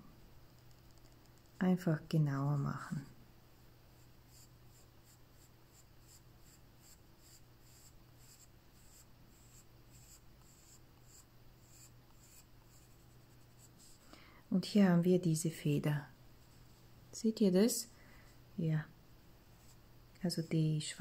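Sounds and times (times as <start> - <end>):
pencil scratching on paper: 4.3 - 14.0, 19.6 - 19.8.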